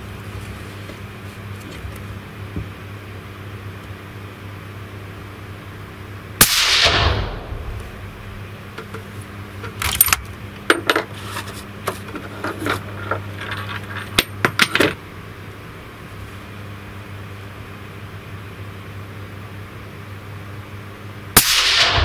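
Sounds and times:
suppressed rifle shot: 6.4s - 8.1s, 21.4s - 22.0s.

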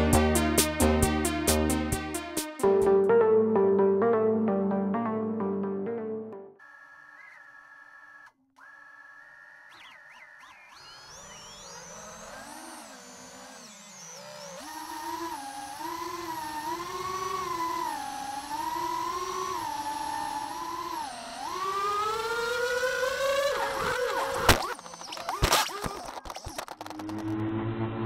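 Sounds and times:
quadcopter motors whining: 6.6s - 28.0s.

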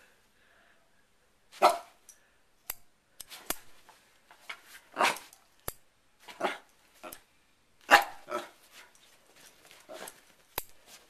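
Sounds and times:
dog barking: 1.6s - 2.0s, 5.0s - 5.3s, 6.3s - 6.7s, 7.9s - 8.6s
hair clip clicking: 5.6s - 5.8s.

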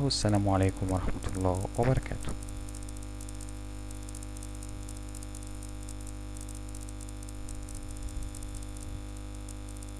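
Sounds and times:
electrical hum and hiss: 0.0s - 9.9s.

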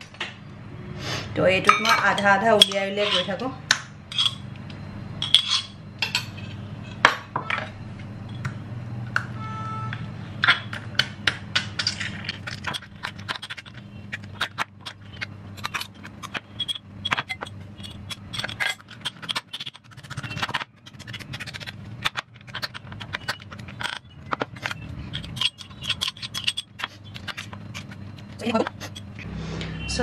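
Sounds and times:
spoon scraping mortar: 2.0s - 3.4s, 11.8s - 29.3s.

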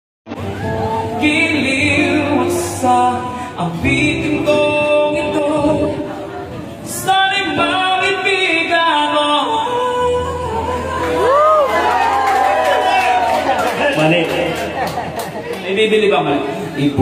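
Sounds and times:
man singing slow serenade: 0.4s - 11.7s.

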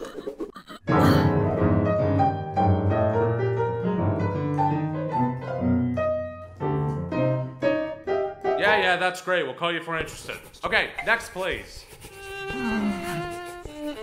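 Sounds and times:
jazz piano playing: 0.9s - 9.2s.

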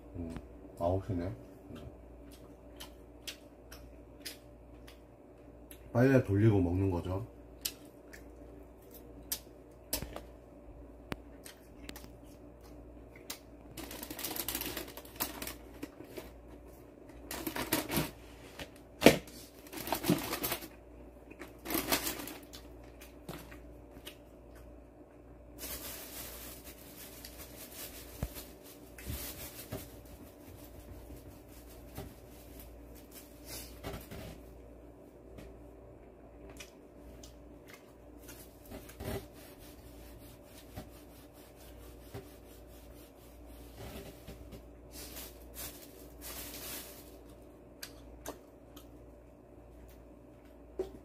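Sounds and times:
crunching and chewing: 1.6s - 5.9s, 7.5s - 10.4s, 11.1s - 17.9s, 19.6s - 25.4s, 36.4s - 39.0s
soft rustle: 25.6s - 33.8s, 38.2s - 47.4s.

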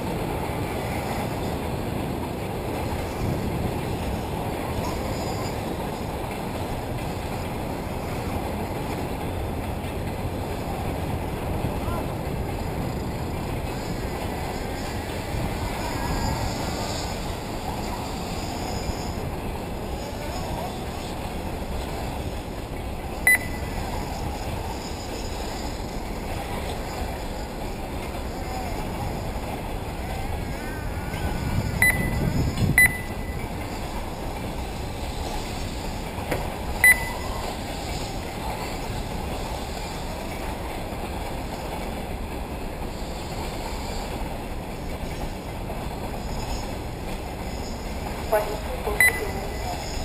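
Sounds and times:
wind buffeting microphone: 0.0s - 24.8s, 28.7s - 36.9s
low background noise: 0.0s - 50.0s
short high electronic beep: 23.3s - 23.8s, 31.8s - 33.4s, 36.8s - 37.5s, 49.0s - 50.0s.

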